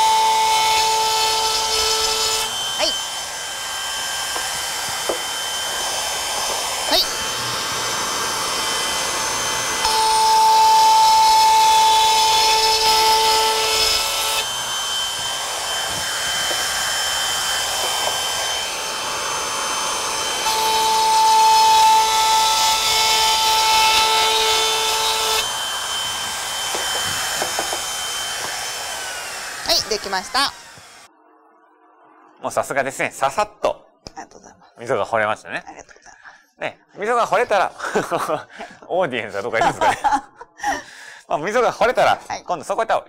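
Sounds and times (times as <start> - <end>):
trim router whining: 0.0 - 32.4.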